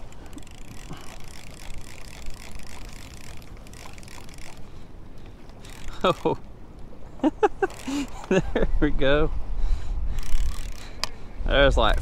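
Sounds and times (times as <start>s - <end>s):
fishing reel clicking as cranked: 0.0s - 6.4s, 7.7s - 8.3s, 10.1s - 11.2s.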